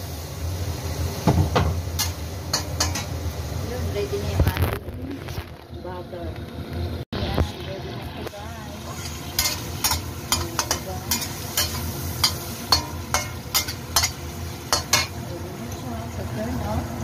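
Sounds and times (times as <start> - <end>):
food sizzling: 0.0 - 17.0
spatula scraping steel wok: 8.8 - 15.2.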